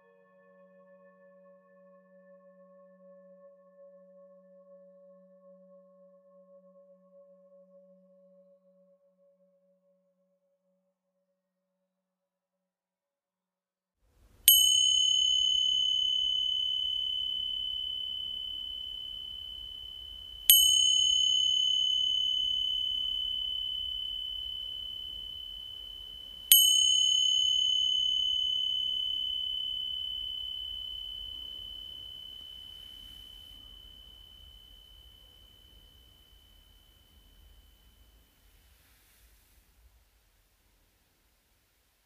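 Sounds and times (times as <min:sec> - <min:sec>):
meditation bell ringing: 0:14.5 - 0:39.5.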